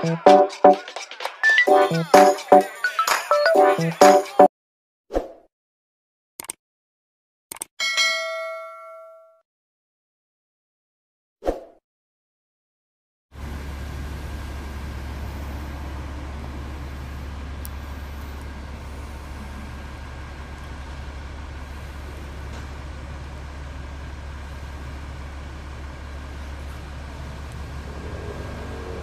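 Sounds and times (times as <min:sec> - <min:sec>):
low engine drone: 0:13.4 - 0:29.0.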